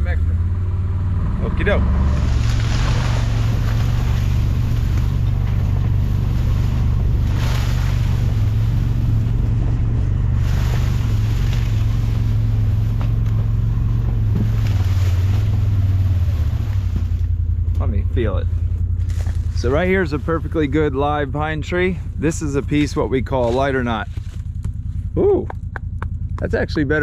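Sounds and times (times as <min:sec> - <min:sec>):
off-road vehicle engine droning: 0:00.0 - 0:27.0
rushing noise: 0:01.6 - 0:17.1.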